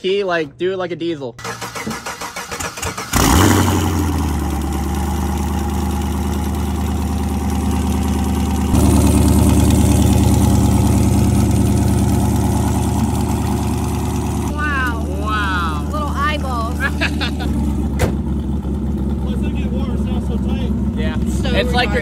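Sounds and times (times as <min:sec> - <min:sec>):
starter cranking engine: 0:01.4 - 0:05.4
engine firing and idling: 0:01.4 - 0:22.0.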